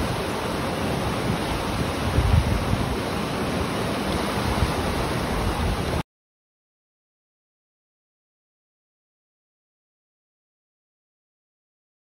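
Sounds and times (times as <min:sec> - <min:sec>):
river rushing over rocks: 0:00.0 - 0:06.0.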